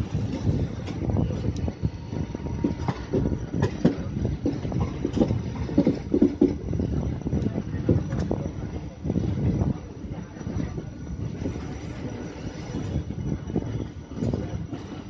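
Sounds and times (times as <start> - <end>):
steady train rumble: 0.0 - 15.0
train wheels clattering over rail joints: 2.5 - 6.8.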